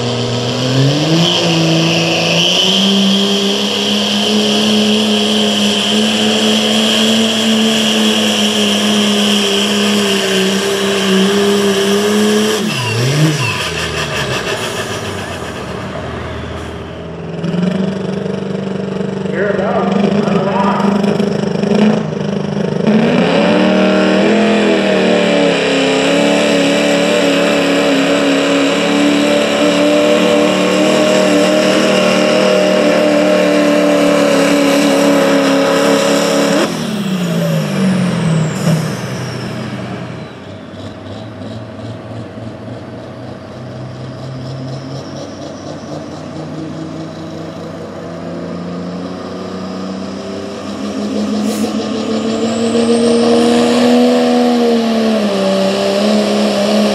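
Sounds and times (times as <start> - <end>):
diesel truck engine revving: 0.0 - 56.9
turbo whistle winding down: 0.8 - 15.8.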